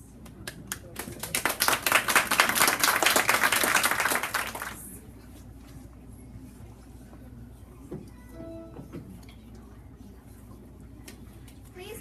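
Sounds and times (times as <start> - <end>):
audience clapping: 0.2 - 5.0.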